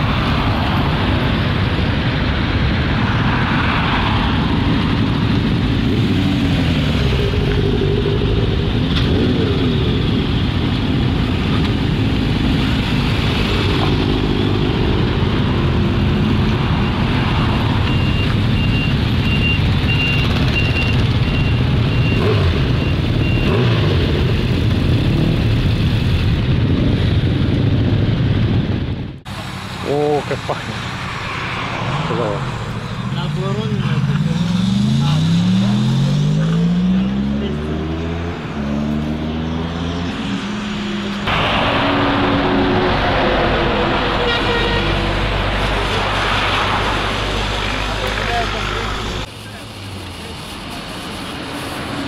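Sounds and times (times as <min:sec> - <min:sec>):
motorcycle engines revving: 0:00.0 - 0:52.0.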